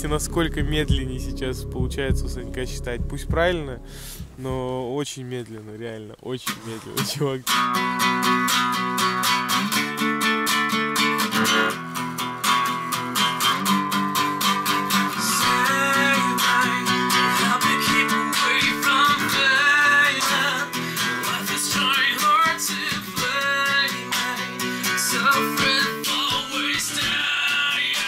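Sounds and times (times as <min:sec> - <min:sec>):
acoustic guitar strumming: 0:00.0 - 0:04.7, 0:07.0 - 0:28.0
man singing: 0:00.0 - 0:04.7, 0:15.2 - 0:28.0.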